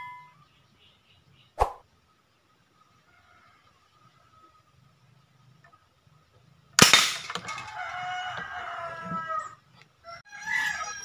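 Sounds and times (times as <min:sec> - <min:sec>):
rooster crowing: 0:07.4 - 0:11.0.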